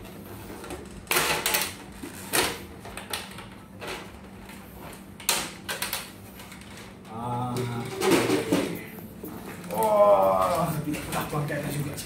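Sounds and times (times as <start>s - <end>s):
man humming: 7.1s - 9.0s, 9.6s - 10.9s.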